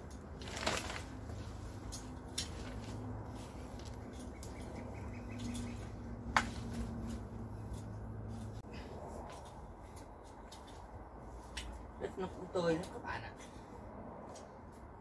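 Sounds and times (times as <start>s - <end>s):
rake tines clicking: 0.0s - 8.5s.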